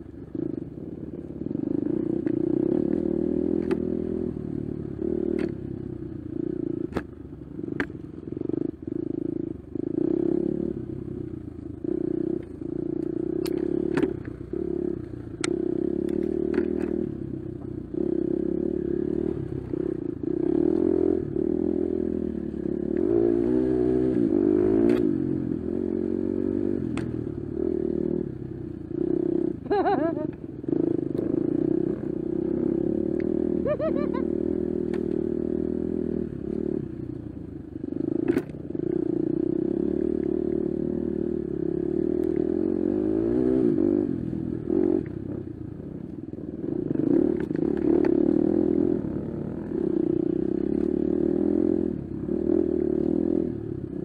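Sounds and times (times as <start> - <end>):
dirt bike engine revving: 17.9 - 36.8.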